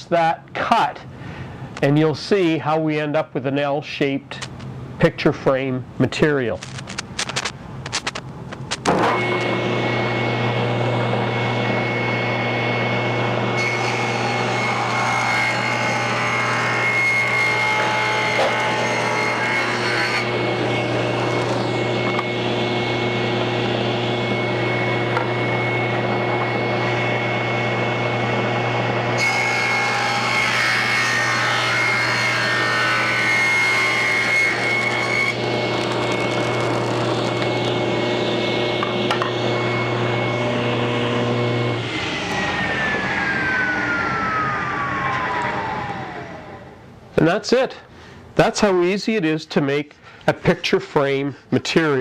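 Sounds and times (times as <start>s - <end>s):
saw blade ripping wood: 6.6s - 9.7s, 13.6s - 22.6s, 29.2s - 40.0s
table saw humming and whining: 8.9s - 46.9s.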